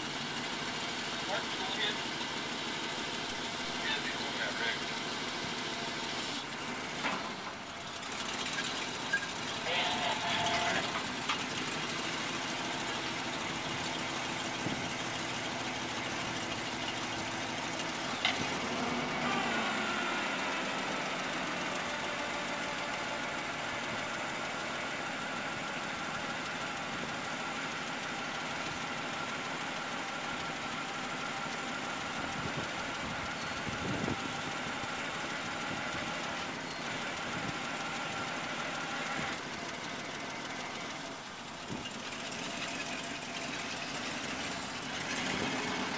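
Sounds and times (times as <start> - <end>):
truck engine running: 0.0 - 45.9.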